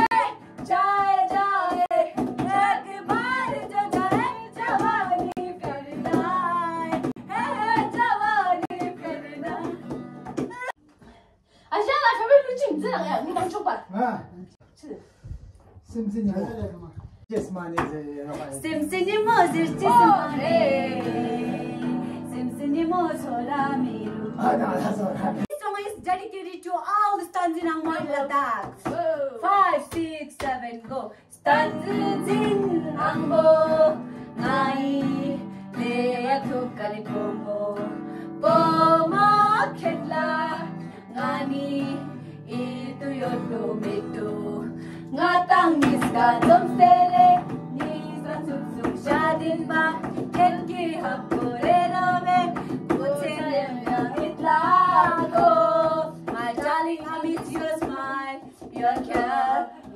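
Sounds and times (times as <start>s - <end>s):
strummed acoustic guitar: 0.0s - 10.7s, 18.3s - 25.5s, 31.5s - 59.6s
cajon beating: 0.0s - 10.8s, 16.3s - 26.2s, 27.5s - 41.9s, 45.2s - 59.9s
women singing: 0.0s - 10.8s, 18.5s - 59.9s.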